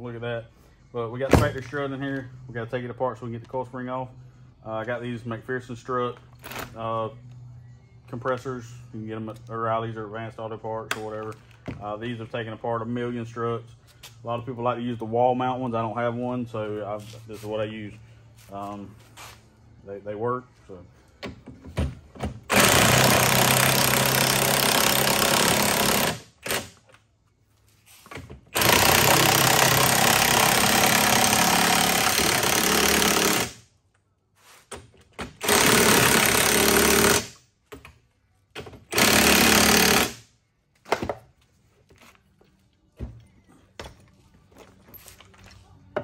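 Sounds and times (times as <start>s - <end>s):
impact wrench hammering: 38.6s - 40.2s.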